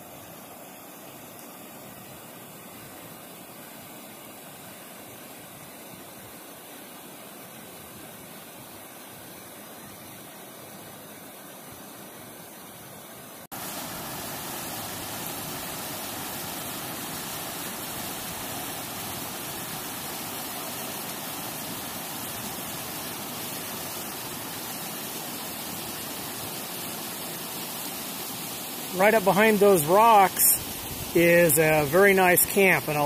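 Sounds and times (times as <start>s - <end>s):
creek water rushing over rocks: 0.0s - 33.0s.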